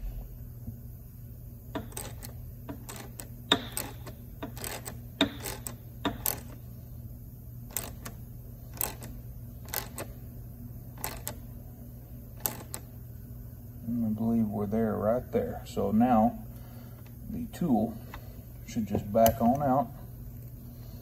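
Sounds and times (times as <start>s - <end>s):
steady low hum: 0.0s - 21.0s
sharp irregular clicks: 1.8s - 6.6s, 8.8s - 10.1s, 12.4s - 12.9s.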